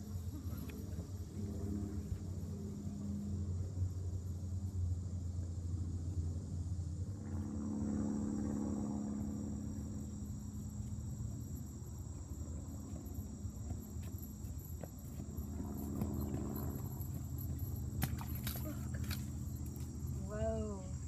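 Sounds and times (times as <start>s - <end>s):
distant engine drone: 0.0s - 21.0s
insects buzzing: 0.0s - 21.0s
low steady rumble: 0.0s - 21.0s.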